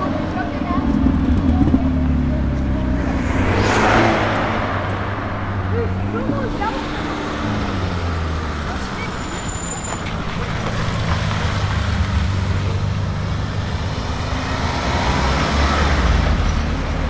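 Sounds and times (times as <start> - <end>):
car engine passing at low revs: 0.0 - 9.0.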